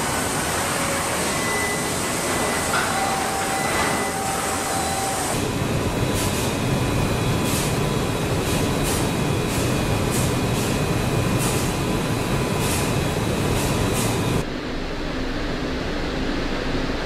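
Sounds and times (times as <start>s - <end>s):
faint machine whines: 0.0s - 8.3s
machinery noise: 0.0s - 17.0s.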